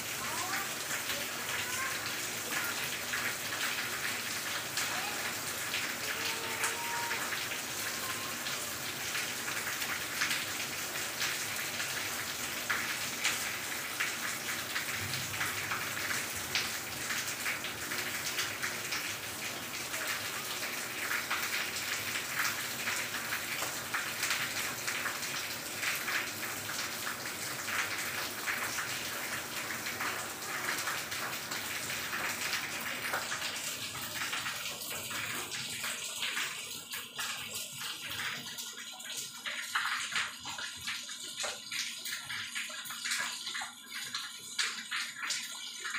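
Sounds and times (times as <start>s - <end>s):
raindrops ticking on surfaces: 0.0s - 45.9s
steady rain falling: 0.0s - 45.9s.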